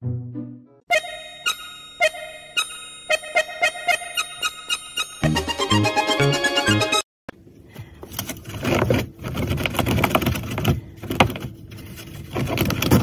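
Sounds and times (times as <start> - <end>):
music: 0.0 - 2.5, 3.1 - 7.1
rabbit scratching and rustling: 8.1 - 13.0.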